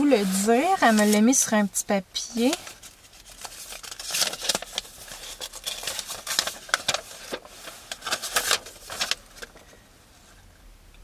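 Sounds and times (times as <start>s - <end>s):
paper rustling: 0.0s - 1.4s, 2.4s - 9.8s.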